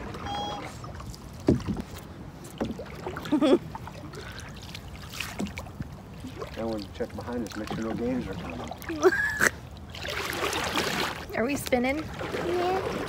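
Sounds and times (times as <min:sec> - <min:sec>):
low wash of water: 0:00.0 - 0:13.0
oars knocking in oarlocks: 0:01.4 - 0:02.9.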